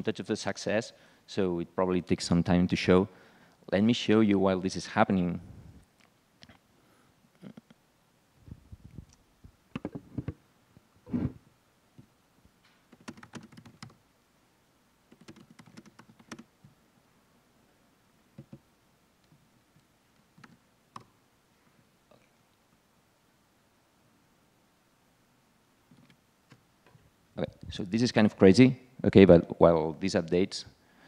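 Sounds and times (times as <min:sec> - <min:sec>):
keyboard typing: 0:12.9 - 0:14.0, 0:15.1 - 0:16.5, 0:18.4 - 0:18.6, 0:20.4 - 0:21.1.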